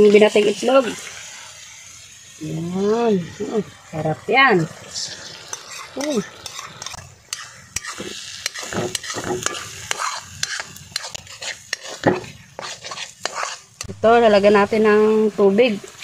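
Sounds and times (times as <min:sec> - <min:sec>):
egg and tomato sizzling in a pan: 0:00.0 - 0:16.0
utensil scraping against pan: 0:05.0 - 0:13.9.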